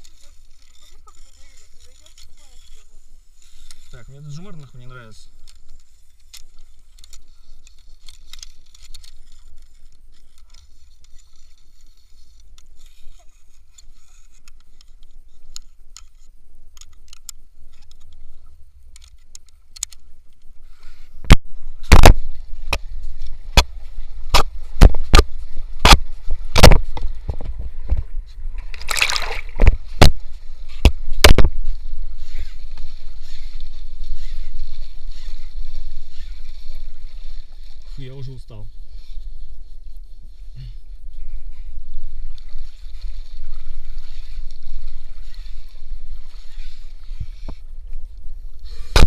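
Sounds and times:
river water sloshing and splashing: 21.7s - 40.4s, 41.2s - 48.4s
loud splash: 28.6s - 29.7s.

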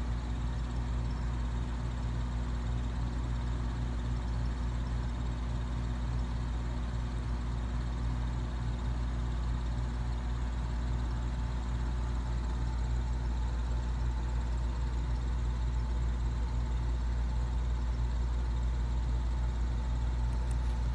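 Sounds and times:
air conditioner humming: 9.6s - 20.9s.

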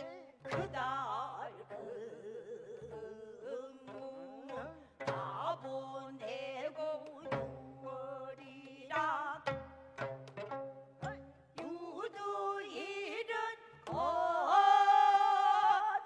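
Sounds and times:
women singing with vibrato: 0.0s - 9.6s, 11.1s - 16.0s
drum accompaniment: 8.9s - 12.1s, 13.8s - 15.5s.

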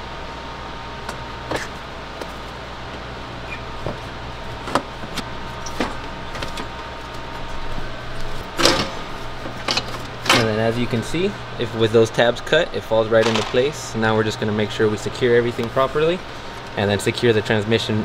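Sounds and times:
steady hum: 0.0s - 18.0s
radiator clunk: 8.5s - 11.2s, 13.1s - 14.2s.

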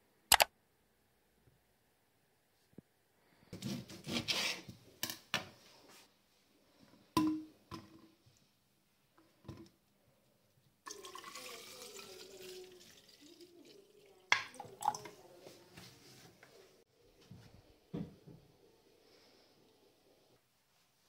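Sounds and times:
liquid pouring into a cup: 10.9s - 15.2s.

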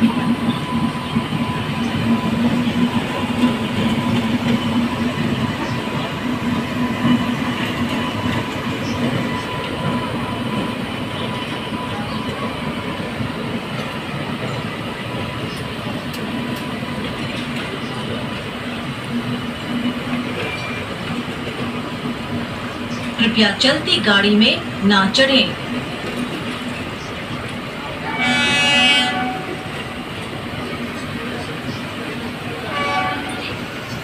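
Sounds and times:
train wheels rumbling on rails: 0.0s - 34.0s.

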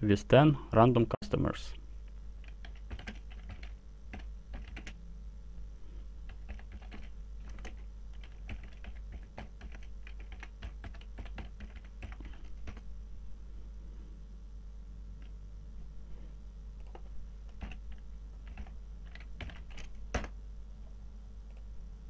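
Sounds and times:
faint steady hum: 0.0s - 22.0s
keyboard typing clicks: 2.4s - 5.0s, 16.8s - 20.4s.

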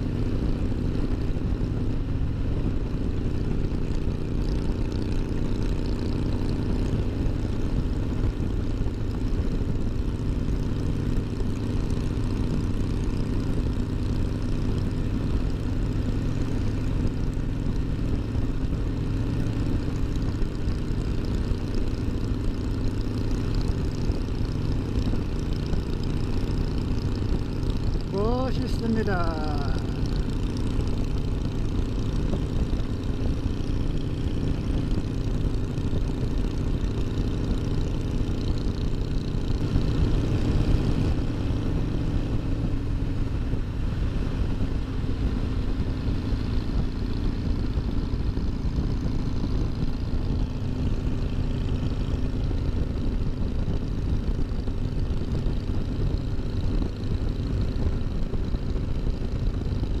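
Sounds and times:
motorcycle engine rumbling: 0.0s - 60.0s.

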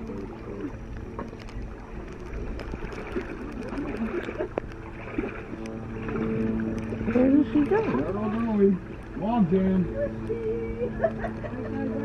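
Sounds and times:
ditch water flowing and lapping: 0.0s - 12.0s
faint voices talking: 7.0s - 12.0s.

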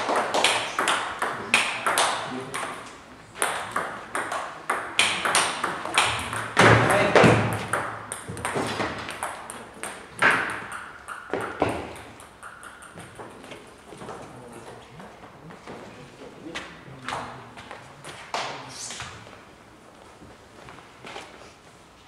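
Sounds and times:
ping pong ball clicking off rackets: 0.0s - 13.8s.

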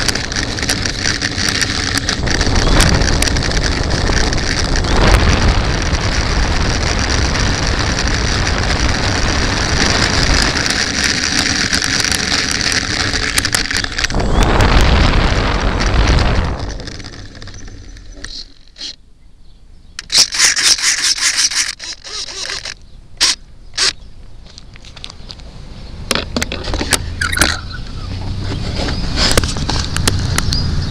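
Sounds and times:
sharp squeaks and scrapes: 0.0s - 5.9s, 8.8s - 14.5s, 15.8s - 19.0s, 20.0s - 24.0s, 26.4s - 30.9s
model airplane motor rushing: 0.0s - 19.0s, 20.0s - 24.0s
small wheels on rough pavement: 0.0s - 19.0s, 20.0s - 30.9s.

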